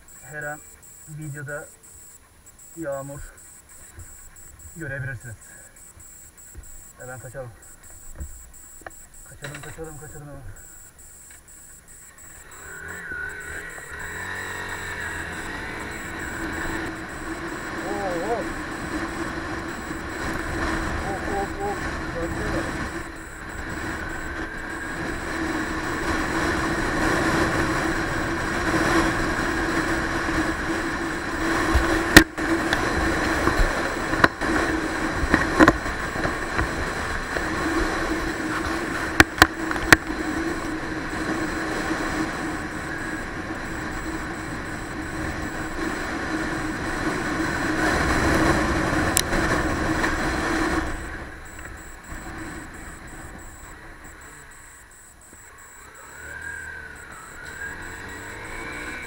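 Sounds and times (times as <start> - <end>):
motorcycle engine running: 56.0 - 59.0.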